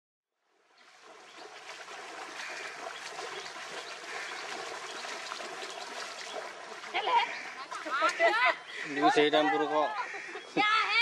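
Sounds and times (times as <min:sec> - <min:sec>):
water splashing and sloshing: 0:00.4 - 0:11.0.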